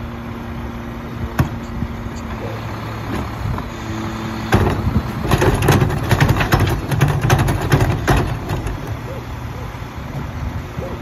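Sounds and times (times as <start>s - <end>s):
diesel engine idling: 0.0s - 11.0s
recyclables clattering: 4.5s - 9.2s.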